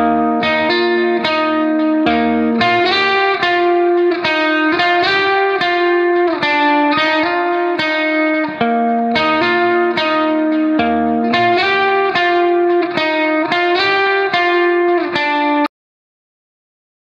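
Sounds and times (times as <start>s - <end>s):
plucked string melody: 0.0s - 15.7s.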